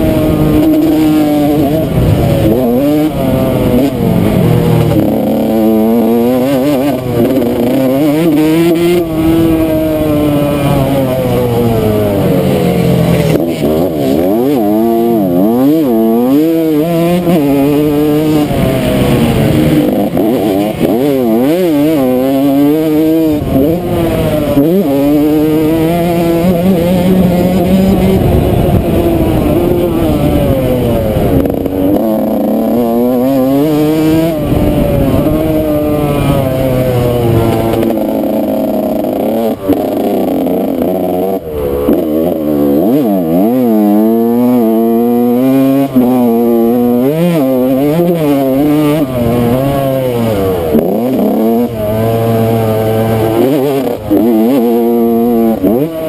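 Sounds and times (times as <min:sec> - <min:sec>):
dirt bike engine revving: 0:00.0 - 0:56.0
wind rumble on microphone: 0:25.6 - 0:32.1, 0:33.4 - 0:38.1.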